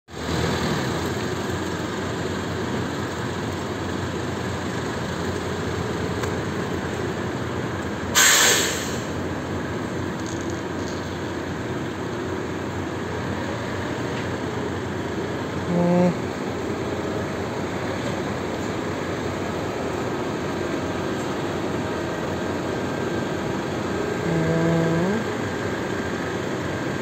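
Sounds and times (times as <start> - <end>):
forklift engine running: 0.1 - 27.0
loud hiss: 8.1 - 9.2.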